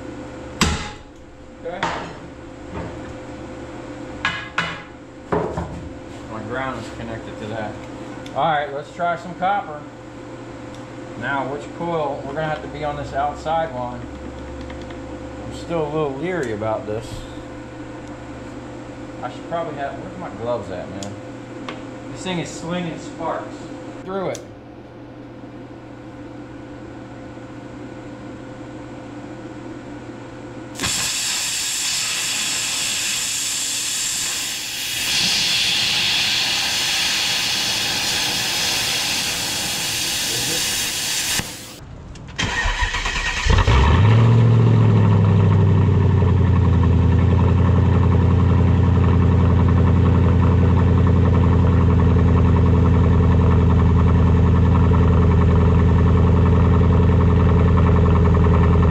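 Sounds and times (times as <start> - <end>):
low electrical hum: 0.0 - 58.9
air compressor running: 11.2 - 20.8, 30.7 - 41.8, 42.4 - 58.9
plasma cutter hissing: 30.8 - 41.8.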